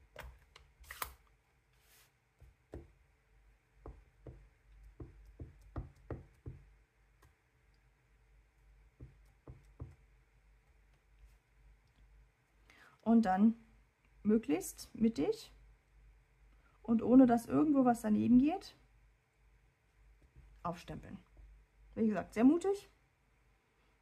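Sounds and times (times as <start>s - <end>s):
stamp knocking on ink pad: 3.8s - 6.7s, 9.0s - 10.0s.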